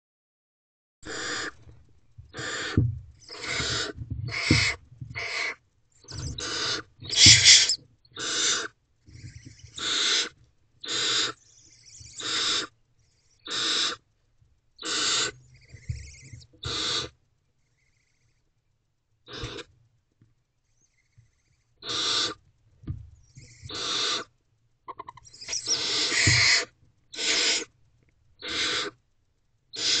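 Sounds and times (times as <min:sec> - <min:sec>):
owlets rasping hissing calls: 0:01.1 - 0:01.6, 0:02.4 - 0:05.6, 0:06.2 - 0:12.7, 0:13.4 - 0:14.0, 0:14.8 - 0:17.1, 0:19.3 - 0:19.7, 0:21.8 - 0:22.4, 0:23.7 - 0:24.3, 0:25.0 - 0:27.7, 0:28.4 - 0:29.0, 0:29.8 - 0:30.0.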